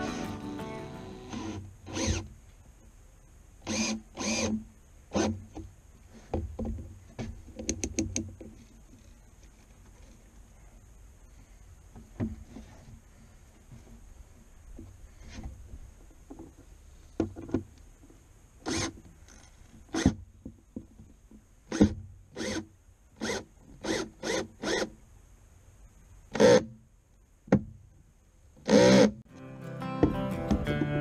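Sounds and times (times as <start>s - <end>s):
cordless drill bursts: 0.9s - 2.2s, 3.6s - 4.5s, 22.4s - 22.6s, 23.2s - 24.9s.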